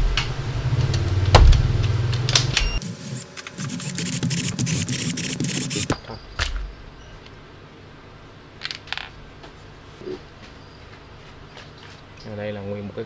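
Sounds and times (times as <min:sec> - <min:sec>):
electric screwdriver motor hum: 0:02.8 - 0:05.9
rapid clicking: 0:03.6 - 0:05.9.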